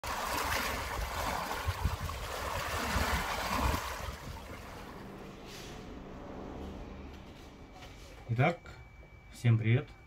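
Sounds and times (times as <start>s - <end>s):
lake waves lapping on stones: 0.0s - 4.8s
low rumbles: 1.7s - 9.0s.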